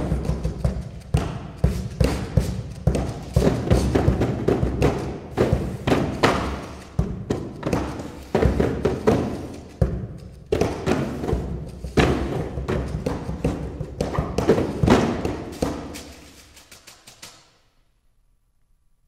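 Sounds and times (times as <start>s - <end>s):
hands thumping cardboard boxes: 0.0s - 16.1s.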